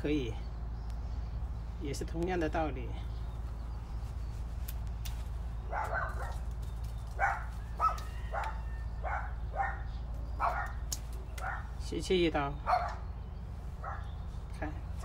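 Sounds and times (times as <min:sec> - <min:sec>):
steady low hum: 0:00.0 - 0:15.0
dog barking: 0:05.7 - 0:06.4, 0:07.2 - 0:11.7, 0:12.6 - 0:13.1, 0:13.8 - 0:14.1.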